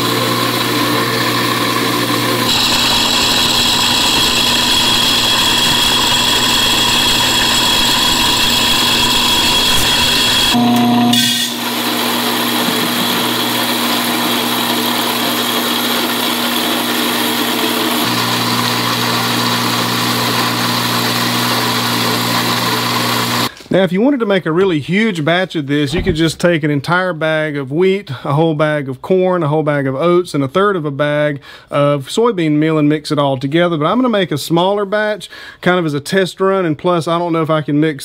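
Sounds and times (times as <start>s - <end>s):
electric grinder grinding corn: 0.0s - 23.5s.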